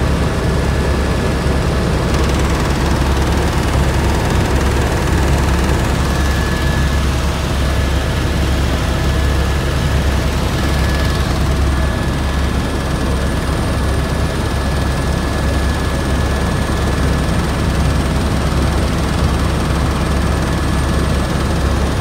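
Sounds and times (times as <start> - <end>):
helicopter rotor and engine drone: 0.0 - 22.0
thin steady whine: 0.2 - 14.4.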